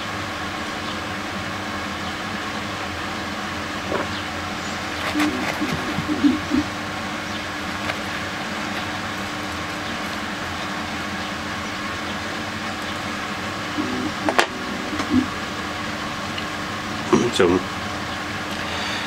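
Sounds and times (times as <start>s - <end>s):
low hum: 3.7s - 19.0s.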